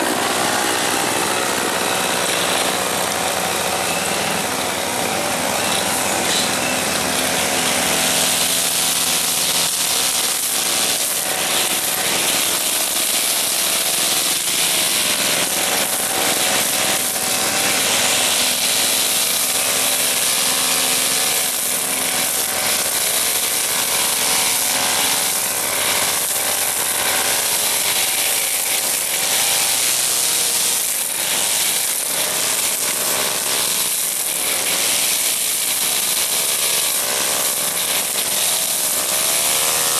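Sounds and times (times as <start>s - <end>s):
brush cutter cutting grass: 0.0s - 39.9s.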